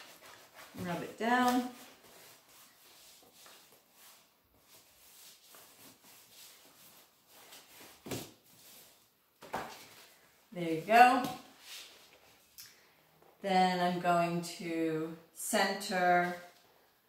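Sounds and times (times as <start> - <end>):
paper rubbing and rustling: 0.0 - 9.0.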